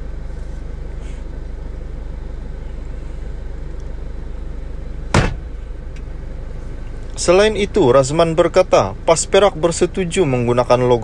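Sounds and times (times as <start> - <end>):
low-pitched background hum: 0.0 - 11.0.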